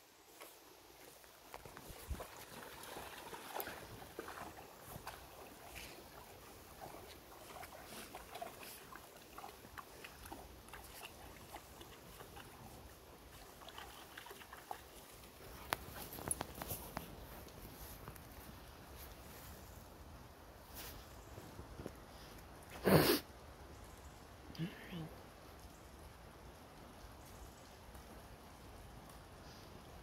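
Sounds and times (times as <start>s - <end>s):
dog splashing in stream: 1.0s - 16.7s.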